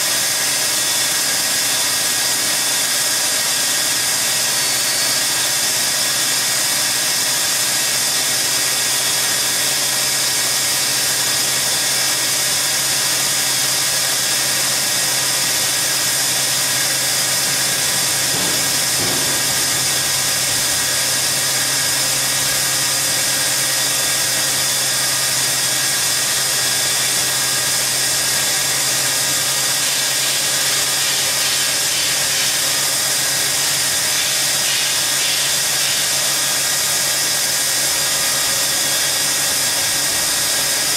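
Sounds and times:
machine hum: 14.4 - 24.2
band saw blade hissing in metal: 29.7 - 36.5.

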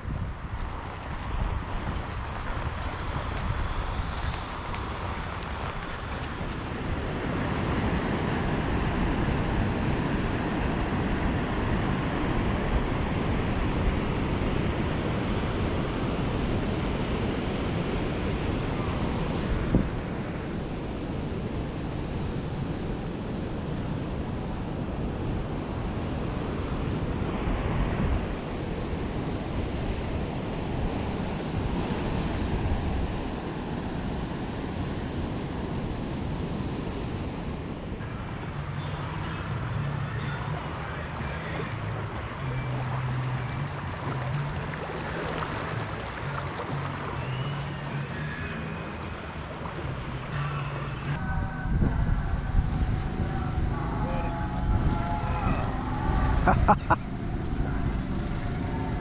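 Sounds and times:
wind buffeting microphone: 0.0 - 39.1, 51.1 - 59.0
river flowing: 0.0 - 59.0.

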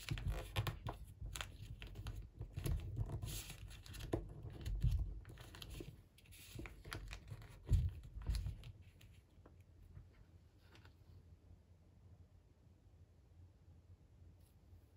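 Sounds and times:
paper rustling and crinkling: 0.0 - 11.1.

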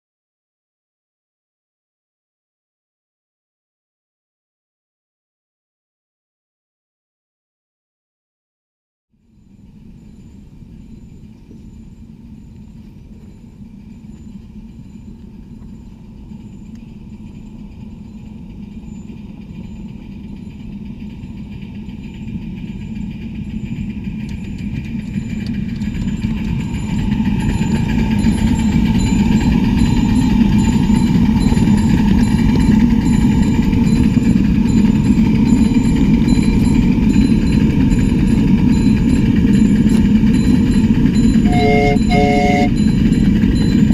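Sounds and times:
steam locomotive running past: 9.2 - 43.9.

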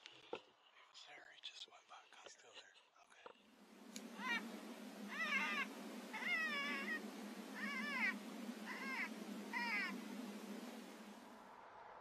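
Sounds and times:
high-pitched mewing calls: 3.7 - 11.2.

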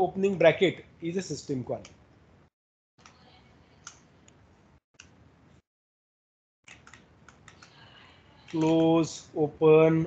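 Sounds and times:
computer mouse clicks: 3.8 - 4.4, 5.0 - 5.2, 6.6 - 8.9.

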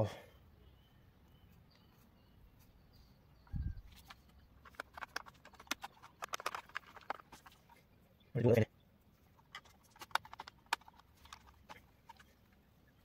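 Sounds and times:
plastic connectors clicking: 3.9 - 7.7, 9.5 - 12.3.

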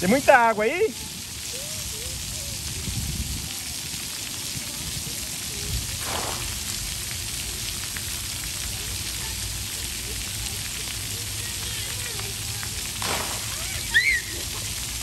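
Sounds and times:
water jets spraying: 0.0 - 15.0
distant children's voices: 1.0 - 6.7, 7.3 - 14.7.

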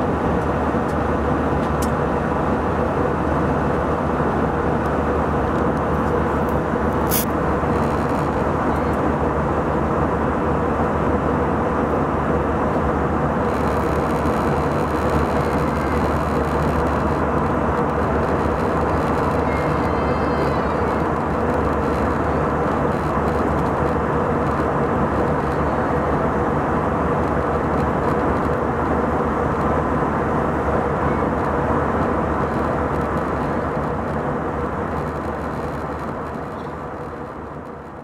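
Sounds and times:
jet engine cabin drone: 0.0 - 38.0.

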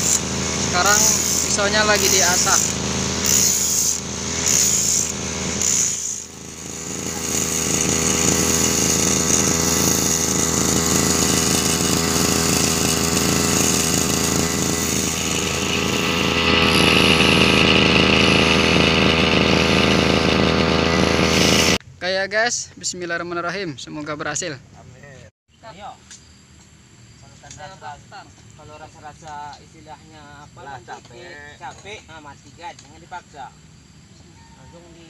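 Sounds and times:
two-stroke engine running: 0.0 - 21.8
blade being sharpened: 1.0 - 16.1.

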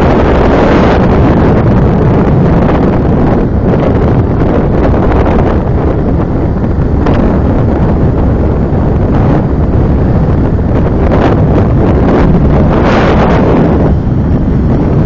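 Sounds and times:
motorbike low rumble: 0.0 - 15.0
wind buffeting microphone: 0.0 - 15.0.

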